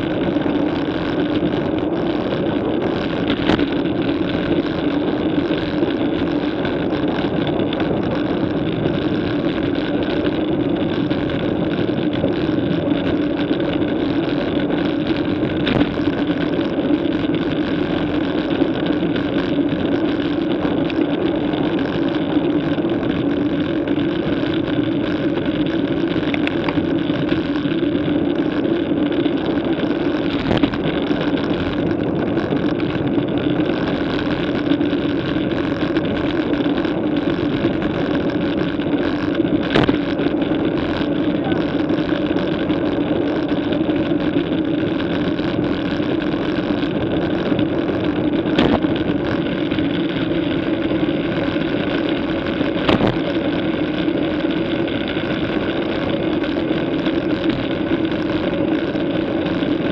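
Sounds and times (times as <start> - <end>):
low hum: 0.0 - 59.9
wind and road noise: 0.0 - 59.9.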